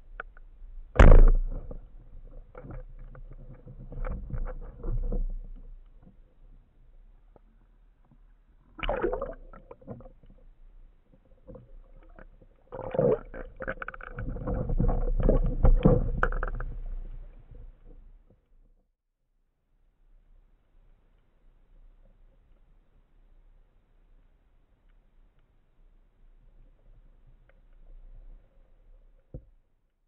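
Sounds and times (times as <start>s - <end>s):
underwater knocks and scrapes: 0.0s - 18.4s
speargun shot thump underwater: 1.0s - 1.8s.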